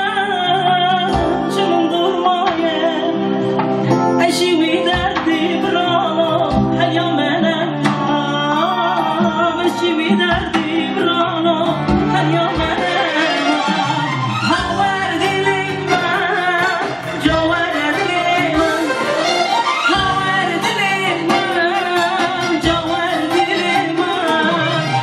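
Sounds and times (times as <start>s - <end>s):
band accompaniment: 0.0s - 25.0s
man singing: 4.3s - 14.0s.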